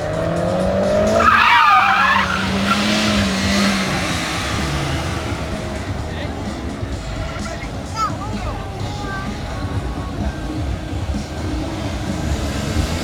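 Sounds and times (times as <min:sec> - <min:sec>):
car engine humming: 0:00.0 - 0:13.0
tyres squealing: 0:00.0 - 0:13.0.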